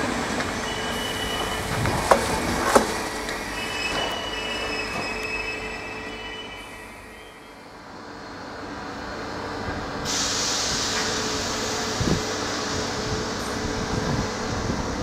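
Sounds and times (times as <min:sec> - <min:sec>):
train wheels squealing: 0:00.6 - 0:02.5, 0:03.3 - 0:07.7.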